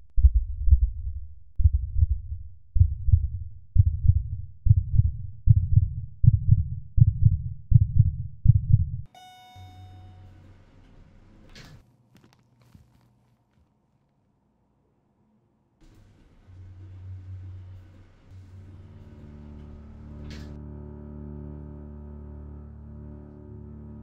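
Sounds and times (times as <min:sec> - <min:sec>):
heartbeat thumps: 0:00.0 - 0:09.1
elevator arrival chime: 0:09.1 - 0:10.5.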